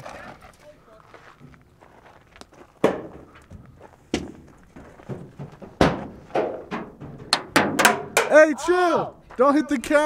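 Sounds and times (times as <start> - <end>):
thunks on hollow metal: 4.1 - 8.5.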